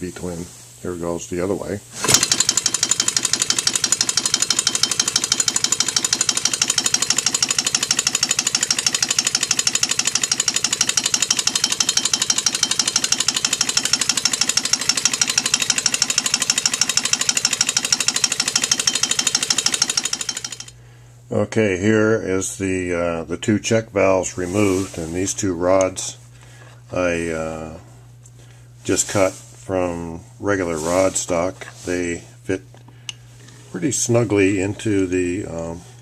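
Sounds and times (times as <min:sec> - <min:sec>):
compressed-air engine puffing: 0:01.9 - 0:21.0
mechanical knocking: 0:02.0 - 0:20.7.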